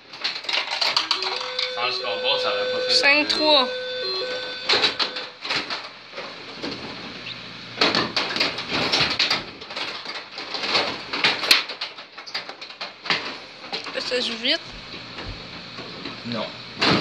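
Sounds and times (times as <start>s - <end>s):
plastic players and puck clacking: 0.0s - 1.7s, 7.8s - 14.0s.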